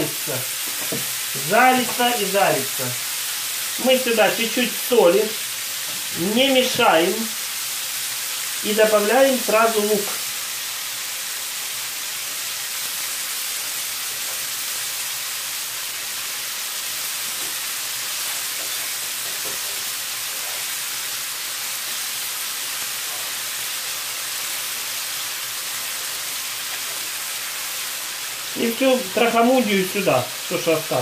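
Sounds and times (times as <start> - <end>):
mushrooms and onion sizzling in a pan: 0.0 - 31.0.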